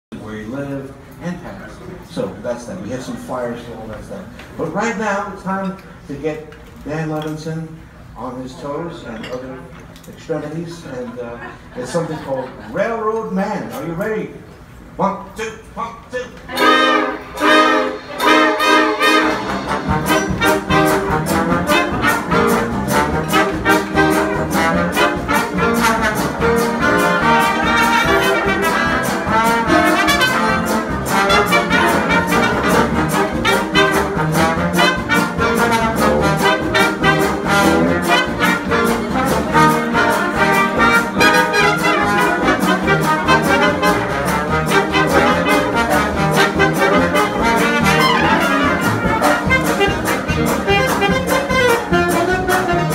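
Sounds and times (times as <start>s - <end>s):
jazz big band playing: 16.1s - 52.9s.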